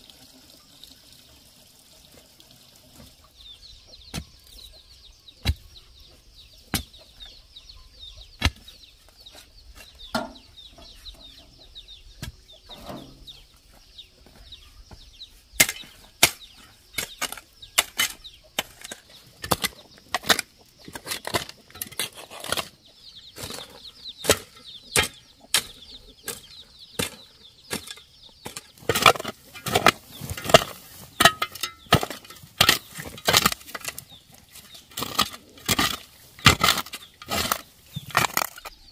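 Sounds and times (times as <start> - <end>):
hoe chopping into soil: 5.4 - 5.7, 6.7 - 7.0, 8.4 - 8.7, 15.6 - 22.8, 23.4 - 38.8
earth being dragged: 15.4 - 23.9, 28.6 - 38.9.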